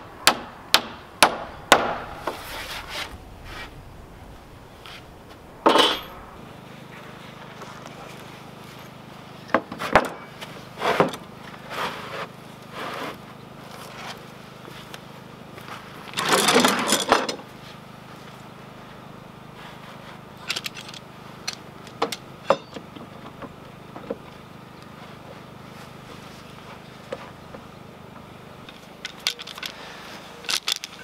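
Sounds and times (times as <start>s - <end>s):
wood scraping on wood: 1.7s - 3.8s, 10.8s - 14.2s.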